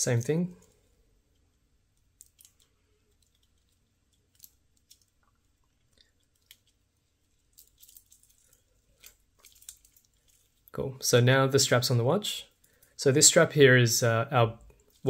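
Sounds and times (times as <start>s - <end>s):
small metal clicks: 0.6s - 10.7s
metal watch bracelet handling: 1.3s - 10.7s.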